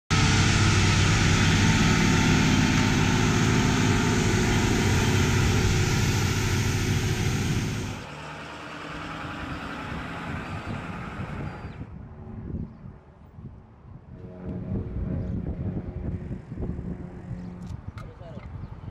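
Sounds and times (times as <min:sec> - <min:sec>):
loud spraying hiss: 0:00.1 - 0:08.0
heavy truck engine: 0:00.1 - 0:12.0.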